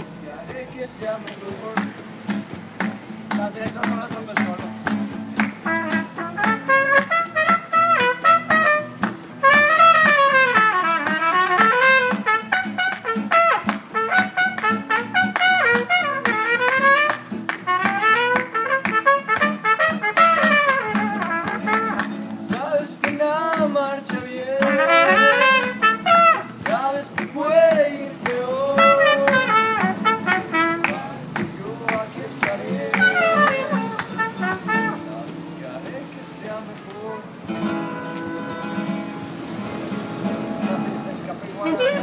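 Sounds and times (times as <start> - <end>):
strummed acoustic guitar: 0.0 - 42.0
trumpet solo melody: 5.6 - 22.1, 24.5 - 26.7, 28.7 - 31.2, 32.8 - 35.2, 37.0 - 39.0, 41.6 - 42.0.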